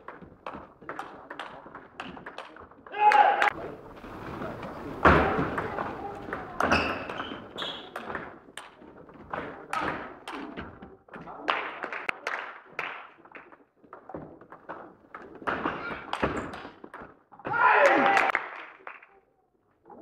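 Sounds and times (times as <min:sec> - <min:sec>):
footsteps on wooden floor: 0:03.6 - 0:09.7.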